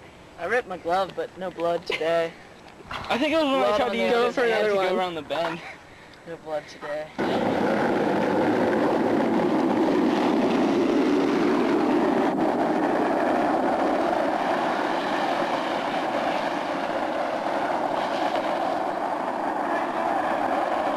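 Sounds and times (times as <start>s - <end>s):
skateboard wheels rolling on asphalt: 0.4s - 5.7s, 7.1s - 20.9s.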